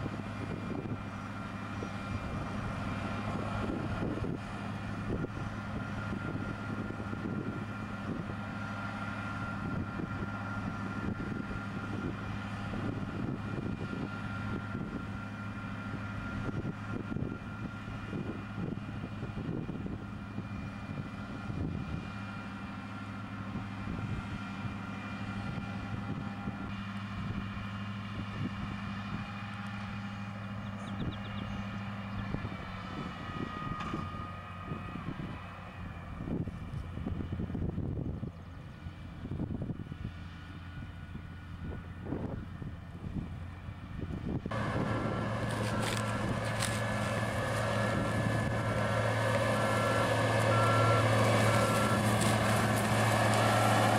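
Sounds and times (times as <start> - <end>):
tractor engine under load: 0.0 - 53.9.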